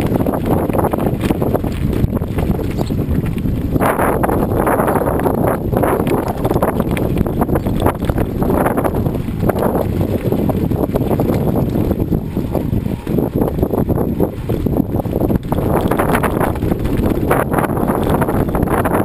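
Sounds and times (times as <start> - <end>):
bicycle tyres rolling on gravel: 0.0 - 19.0
wind noise on microphone: 0.0 - 19.0.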